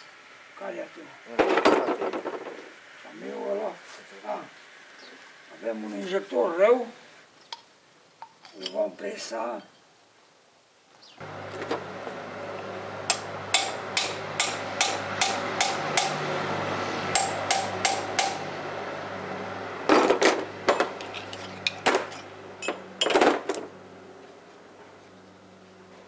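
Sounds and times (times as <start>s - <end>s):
hammer striking metal: 13.1s - 16.3s, 17.0s - 18.5s.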